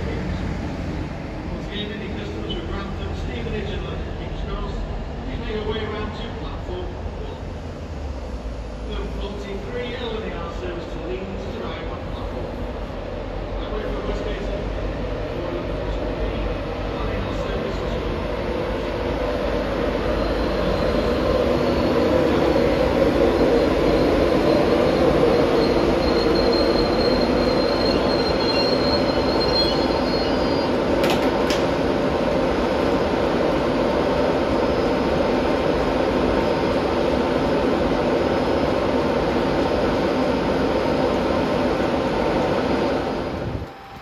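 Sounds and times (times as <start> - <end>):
diesel locomotive engine running: 0.0 - 44.0
faint thin squeal: 25.4 - 30.8.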